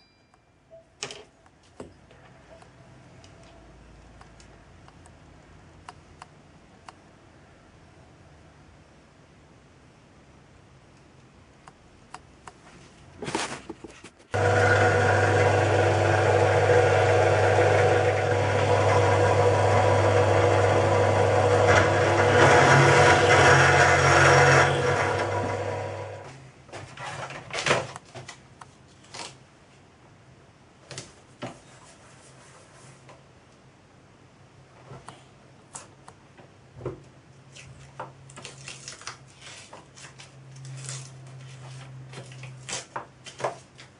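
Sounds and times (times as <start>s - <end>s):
drill press motor hum: 14.4s - 26.3s.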